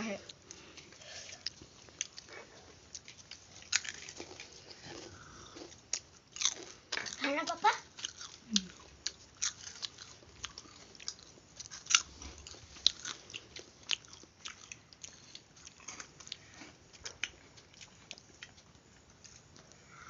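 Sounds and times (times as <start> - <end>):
quiet chewing: 0.1 - 20.0
crunching crisp snacks: 2.9 - 18.6.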